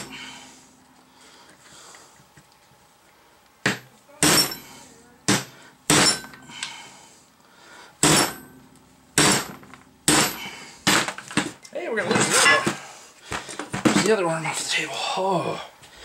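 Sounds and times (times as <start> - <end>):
hammer striking steel punch: 3.6 - 6.4, 8.0 - 8.6, 9.2 - 11.1.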